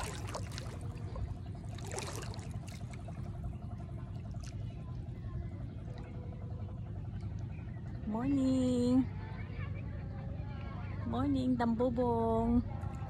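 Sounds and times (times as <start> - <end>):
sea water lapping: 0.0 - 7.2
steady low rumble: 0.0 - 13.0.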